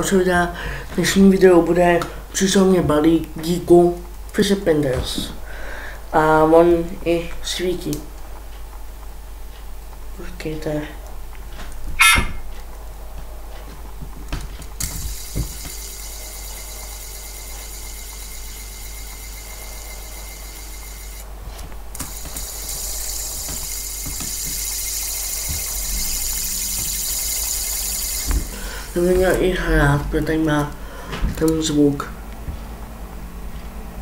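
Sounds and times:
fidget spinner whirring: 0:14.2 - 0:30.8.

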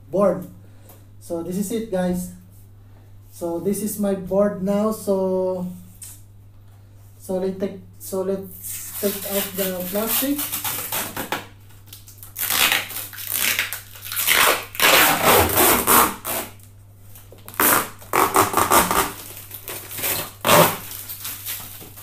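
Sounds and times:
plastic wrap crinkling: 0:08.9 - 0:22.0.

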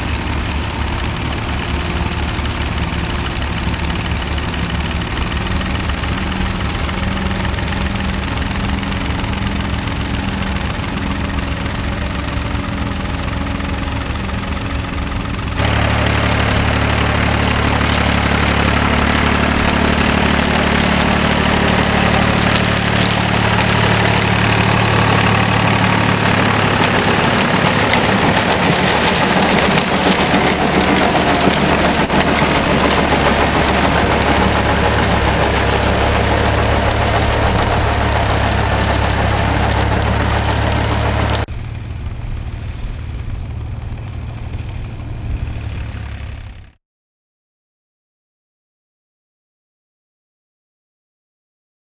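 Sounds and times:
rotavator churning soil: 0:00.0 - 0:41.5
diesel tractor running: 0:00.0 - 0:46.8.

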